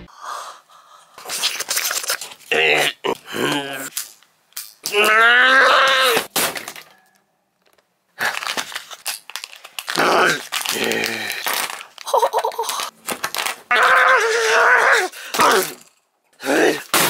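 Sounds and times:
foil wrapper crinkling: 7.6s - 14.1s.

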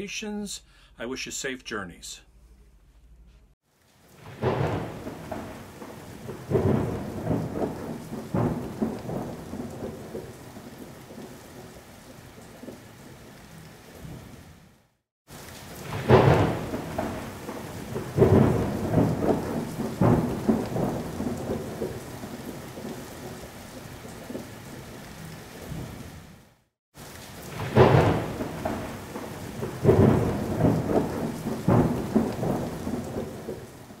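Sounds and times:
steady rain: 3.7s - 34.0s
thunderclaps rumbling: 4.2s - 12.9s, 15.7s - 24.6s, 27.4s - 34.0s.

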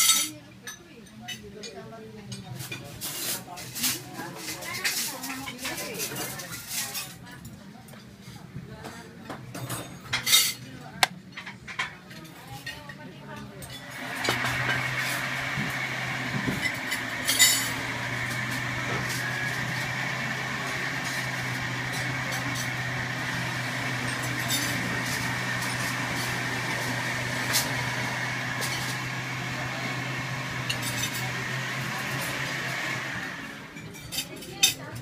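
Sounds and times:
ceiling fan motor humming: 13.8s - 33.8s.

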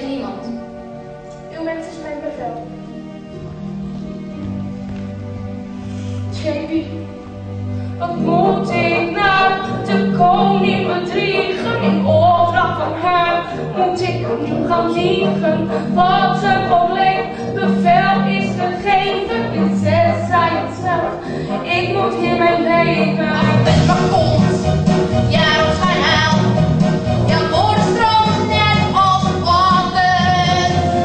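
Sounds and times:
instrumental accompaniment: 0.0s - 31.0s.

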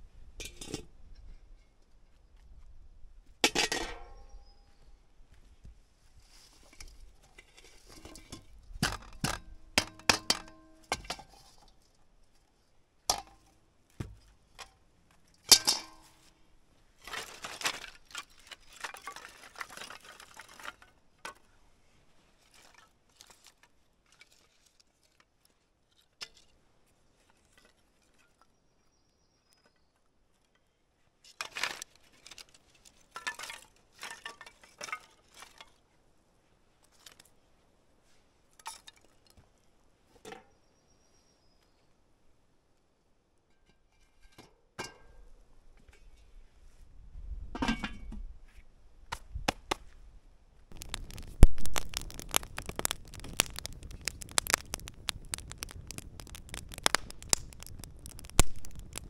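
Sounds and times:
kindling sticks clattering: 15.5s - 16.1s.

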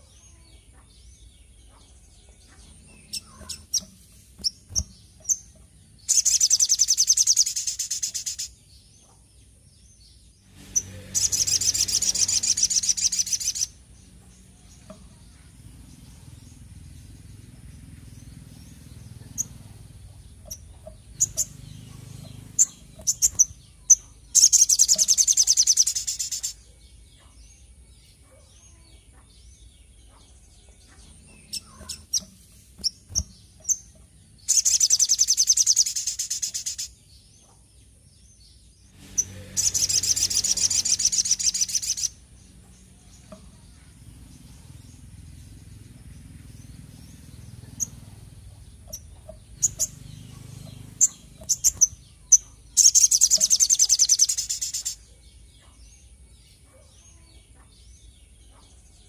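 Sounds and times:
bird twittering: 1.7s - 8.6s, 10.6s - 15.2s, 18.3s - 26.7s, 30.8s - 37.0s, 39.0s - 42.2s, 46.1s - 55.8s.

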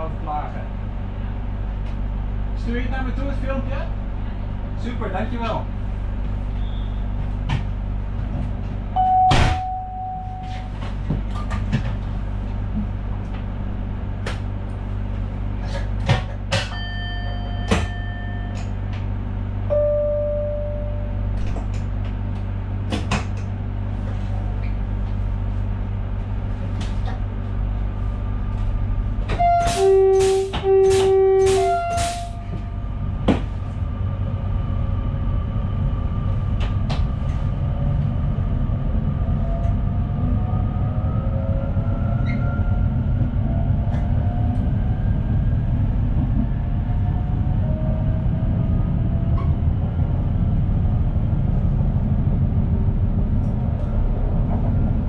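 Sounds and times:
train rumbling: 0.0s - 55.0s
electric train two-tone horn: 29.3s - 32.6s.

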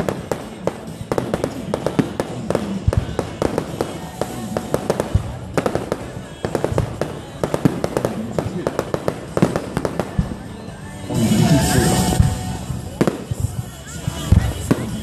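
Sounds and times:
fireworks bangs and crackling pops: 0.0s - 10.7s, 12.0s - 15.0s.

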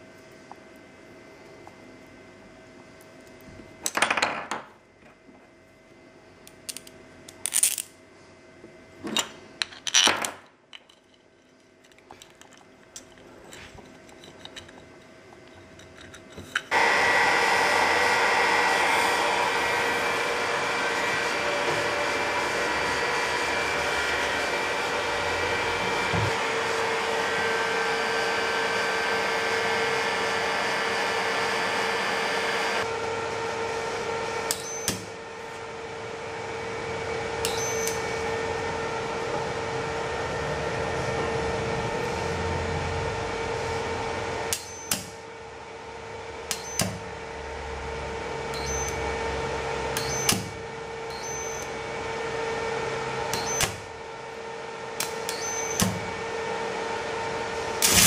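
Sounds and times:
heat gun fan blowing: 12.5s - 58.0s.

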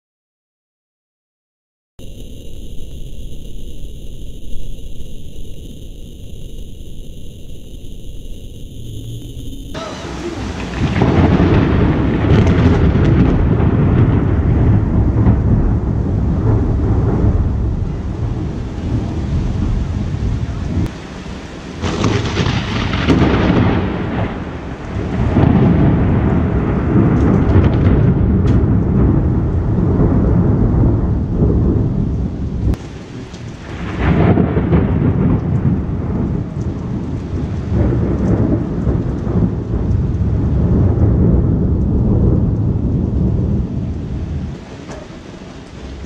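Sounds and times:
rain falling: 2.0s - 46.0s
thunder cracking and rumbling: 2.0s - 46.0s.

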